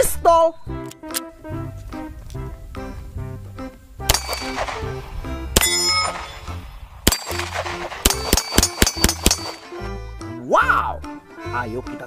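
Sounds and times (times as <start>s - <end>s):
steel plates clanging: 4.1s - 4.8s, 5.6s - 9.8s
pistol shots: 4.1s - 9.8s.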